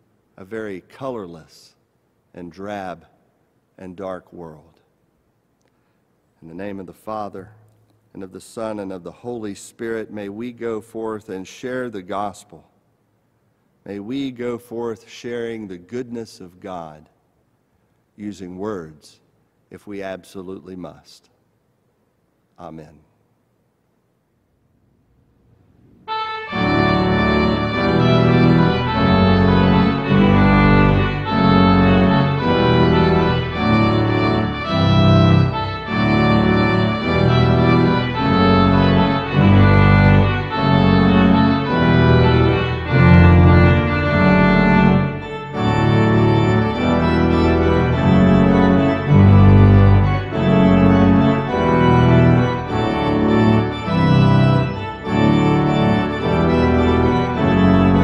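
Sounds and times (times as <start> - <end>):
church organ chords: 25.8 - 58.0.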